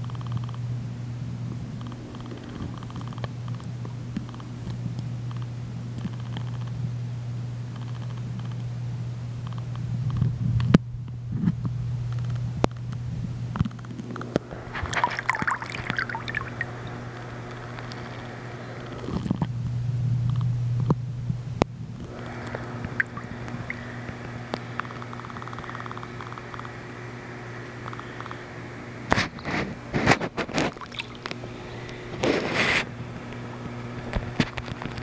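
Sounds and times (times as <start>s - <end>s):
steady low hum: 0.0s - 35.0s
underwater gurgling and bubbling: 14.5s - 18.2s, 22.3s - 24.4s
burst of bubbles: 14.7s - 17.0s, 22.8s - 23.9s, 30.6s - 31.4s.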